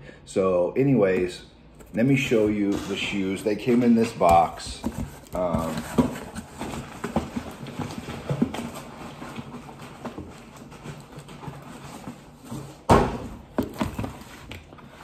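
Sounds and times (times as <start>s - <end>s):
cardboard rustling and scraping: 1.1s - 15.0s
box thudding down: 12.7s - 14.2s.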